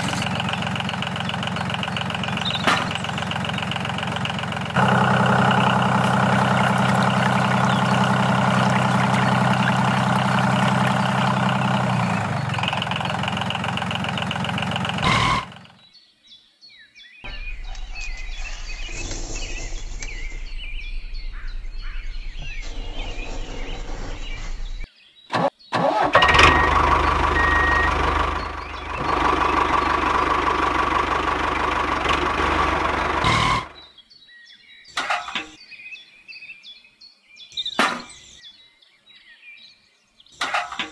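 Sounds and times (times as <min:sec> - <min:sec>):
small engine running: 0:00.0 - 0:15.7, 0:26.1 - 0:33.8.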